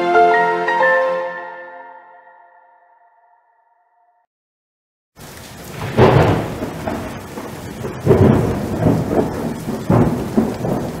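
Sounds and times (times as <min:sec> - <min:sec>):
rolling thunder: 0:05.2 - 0:11.0
steady rain: 0:05.2 - 0:11.0.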